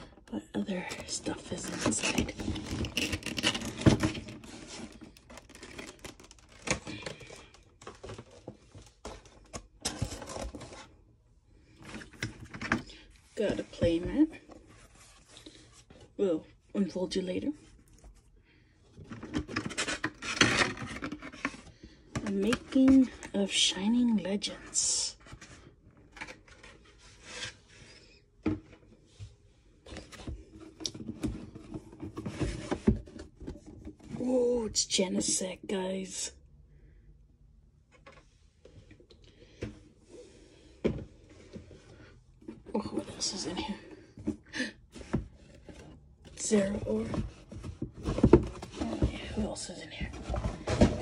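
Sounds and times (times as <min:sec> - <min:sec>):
cardboard box rustling and tapping: 0:44.2 - 0:51.0.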